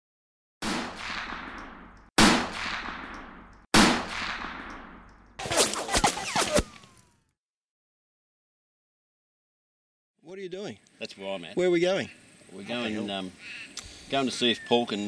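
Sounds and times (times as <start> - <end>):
gunshots with echoing tail: 0.6 - 5.3.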